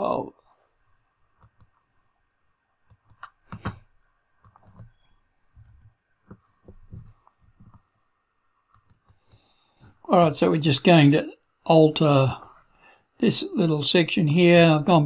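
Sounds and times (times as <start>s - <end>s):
mouse and keyboard clicks: 2.9s - 3.8s, 4.4s - 5.0s, 8.7s - 9.5s.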